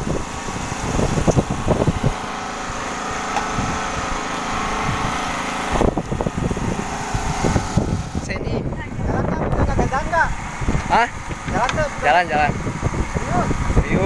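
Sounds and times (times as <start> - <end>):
small engine running: 0.0 - 14.0
low rumbling and knocks: 10.6 - 12.0.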